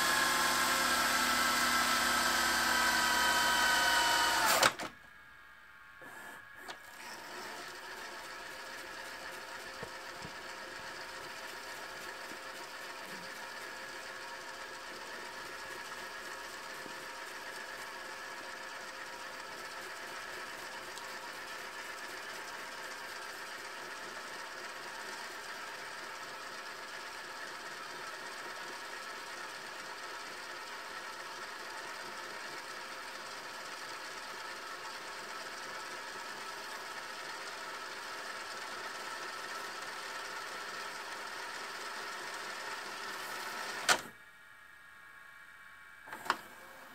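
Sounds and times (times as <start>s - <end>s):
tape reels whirring: 0.0s - 4.9s.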